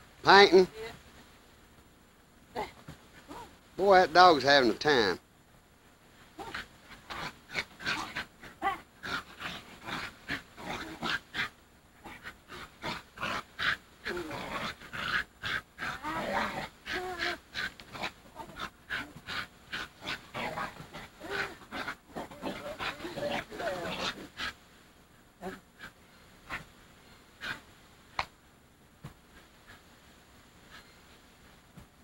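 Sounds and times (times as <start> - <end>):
small dog yipping and growling: 6.4 - 24.5.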